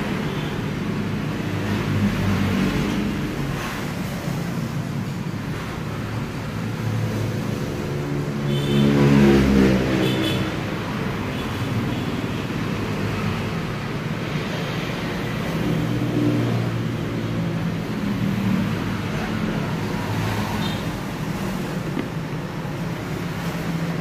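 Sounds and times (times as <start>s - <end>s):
road traffic noise: 0.0s - 24.0s.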